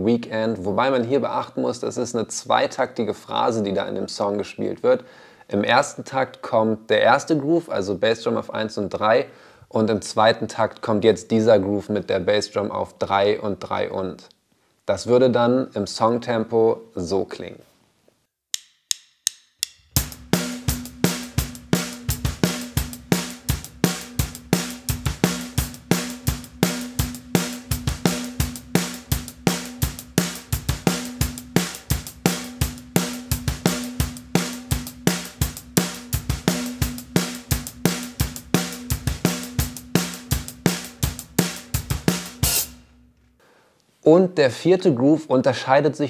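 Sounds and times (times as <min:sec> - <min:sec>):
rock drum groove: 0:19.6 - 0:43.1.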